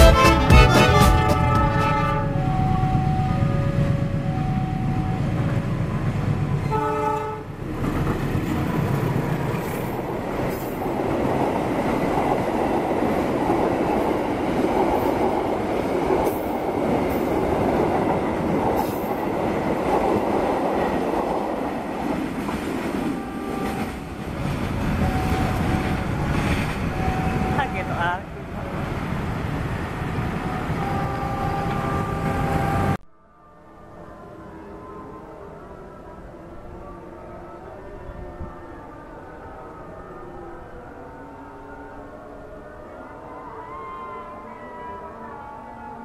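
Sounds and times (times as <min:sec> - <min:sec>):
train horn: 0:00.0 - 0:05.3, 0:06.6 - 0:07.6, 0:22.8 - 0:24.2, 0:25.0 - 0:28.0, 0:30.1 - 0:46.0
train wheels on rails: 0:07.5 - 0:33.0.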